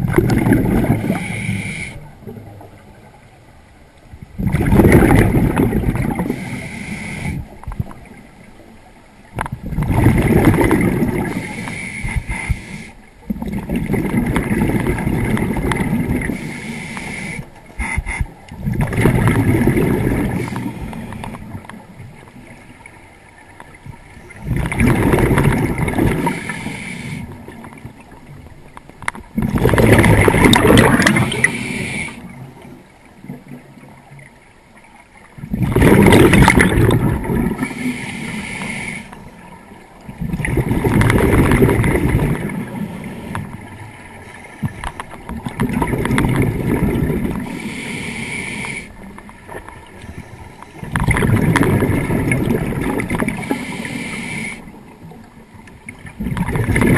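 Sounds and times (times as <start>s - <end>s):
diver exhaust bubbles gurgling: 0.0s - 2.6s, 4.3s - 8.1s, 9.4s - 16.5s, 17.8s - 21.7s, 24.2s - 27.6s, 29.3s - 32.0s, 35.4s - 38.9s, 40.0s - 43.9s, 44.6s - 48.0s, 50.8s - 54.5s, 56.0s - 56.9s.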